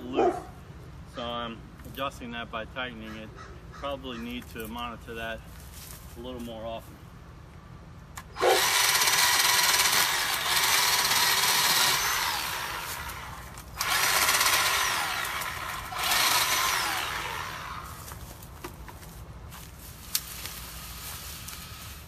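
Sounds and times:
electric chainsaw cutting limb: 0:08.2 - 0:18.2.

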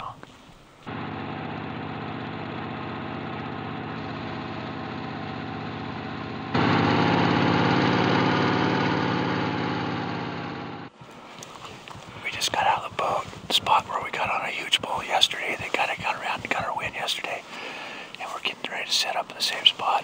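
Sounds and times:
boat motor running: 0:00.9 - 0:10.9.

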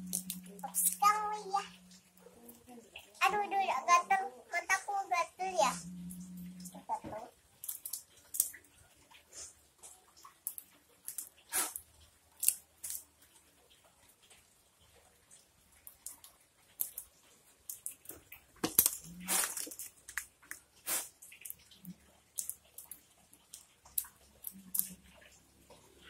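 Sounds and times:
crackling rustle: 0:05.6 - 0:26.0.

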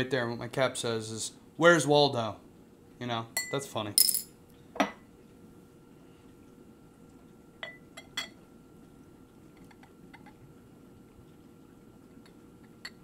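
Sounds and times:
beer pouring: 0:06.1 - 0:13.0.

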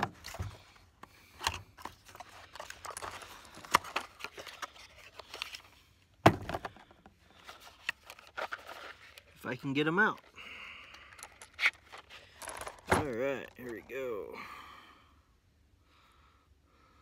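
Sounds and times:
ammo box rustling: 0:00.0 - 0:10.3, 0:11.2 - 0:14.1.

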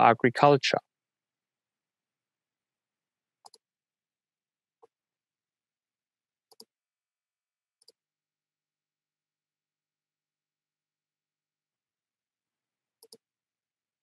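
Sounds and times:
faint computer mouse clicks: 0:03.4 - 0:03.6, 0:06.5 - 0:06.7, 0:07.8 - 0:08.0, 0:13.0 - 0:13.2.

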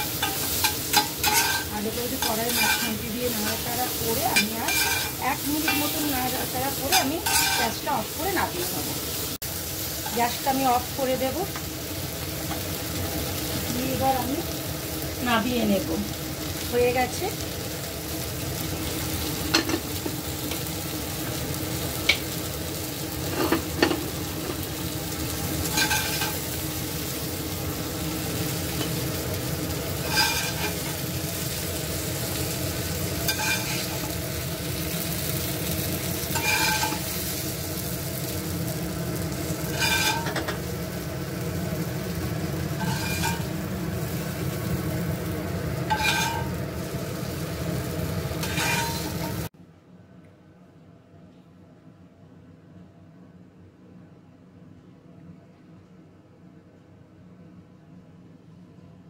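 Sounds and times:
spatula scraping a pan: 0:00.0 - 0:06.0, 0:06.9 - 0:07.8, 0:25.6 - 0:26.5, 0:30.0 - 0:31.0, 0:33.3 - 0:34.1, 0:36.2 - 0:37.3, 0:39.6 - 0:40.6, 0:42.8 - 0:43.5, 0:45.9 - 0:46.6, 0:48.3 - 0:49.5
vegetables sizzling in a pan: 0:00.0 - 0:49.5.

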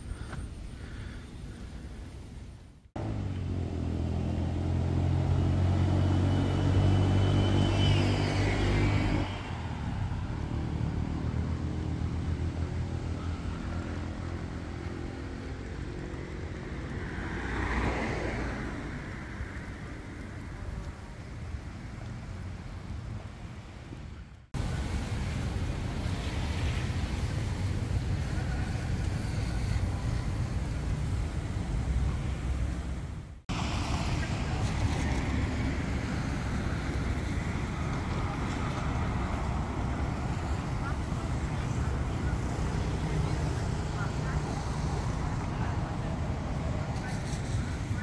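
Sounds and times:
traffic hum: 0:00.0 - 0:48.0
vehicle passing by: 0:03.0 - 0:20.6, 0:24.6 - 0:48.0
vehicle engine running close: 0:03.0 - 0:23.5.

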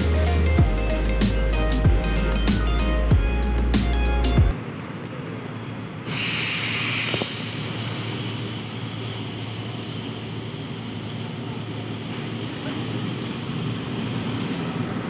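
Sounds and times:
bus engine idling: 0:00.0 - 0:15.0
street noise: 0:00.0 - 0:15.0
air hiss: 0:06.0 - 0:11.0.

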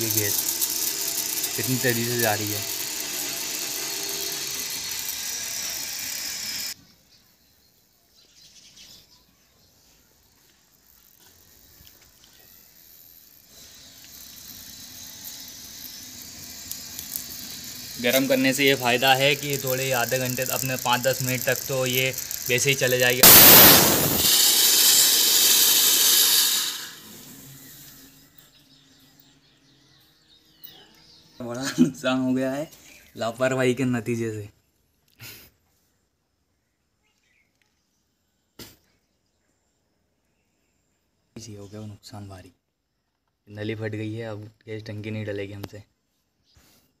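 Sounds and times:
pump running with hiss: 0:00.0 - 0:06.8, 0:13.4 - 0:28.1.

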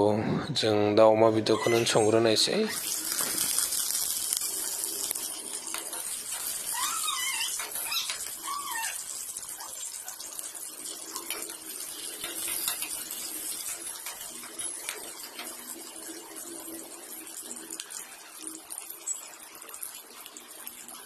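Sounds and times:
short squeaky calls: 0:01.5 - 0:02.2, 0:06.6 - 0:09.0
food sizzling in hot oil: 0:01.6 - 0:21.0
spatula scraping wok: 0:11.3 - 0:15.5.

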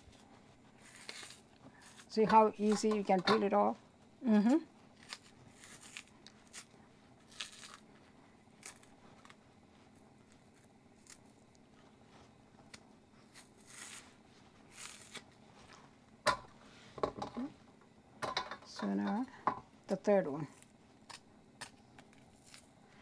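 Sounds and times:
plantain skin tearing: 0:00.8 - 0:02.1, 0:04.9 - 0:07.9, 0:08.5 - 0:09.4, 0:10.2 - 0:11.6, 0:12.7 - 0:15.4, 0:20.5 - 0:22.8.

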